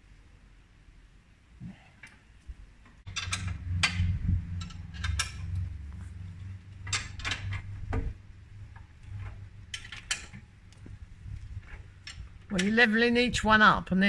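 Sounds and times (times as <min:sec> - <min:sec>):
low steady hum: 0:00.0 - 0:14.0
metal tool clanking on steel: 0:03.1 - 0:05.8.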